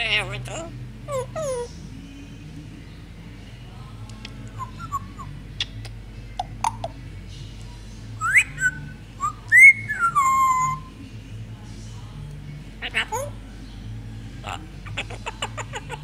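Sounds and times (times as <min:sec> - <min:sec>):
parrot whistling: 0:04.6 - 0:05.3, 0:08.2 - 0:10.9
parrot clicks and chirps: 0:05.6 - 0:06.9.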